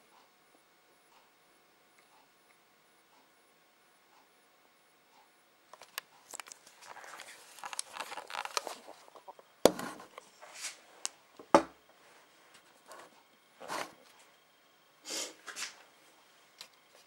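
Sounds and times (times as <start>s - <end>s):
handling rustling and scraping: 5.8s - 11.1s, 11.9s - 14.3s.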